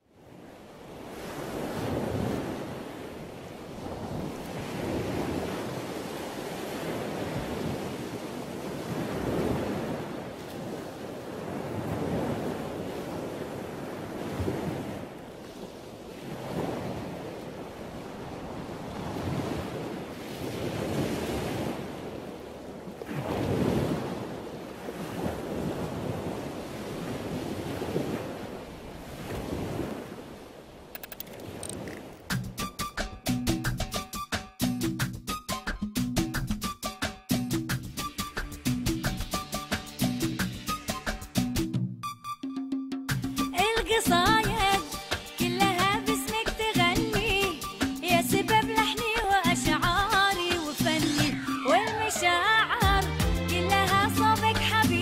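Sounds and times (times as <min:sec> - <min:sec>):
wind: 0:00.0 - 0:55.0
ocean surf washing in: 0:00.2 - 0:33.1.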